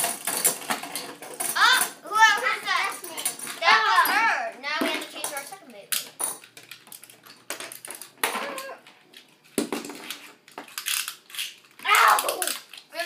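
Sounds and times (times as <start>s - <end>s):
plastic spinning tops clicking: 10.1s - 13.0s.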